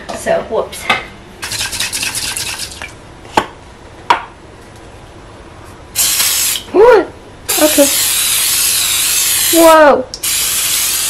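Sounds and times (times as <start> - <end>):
spray can rattling: 1.4 - 2.7, 6.0 - 6.6, 7.5 - 9.6, 10.2 - 11.0
aerosol spray hissing: 6.0 - 6.6, 7.5 - 9.6, 10.2 - 11.0.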